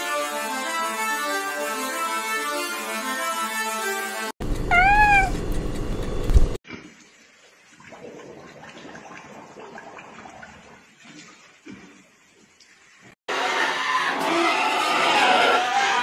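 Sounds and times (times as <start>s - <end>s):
penguin call: 4.7s - 5.3s
pigs rooting in water trough: 6.6s - 12.8s.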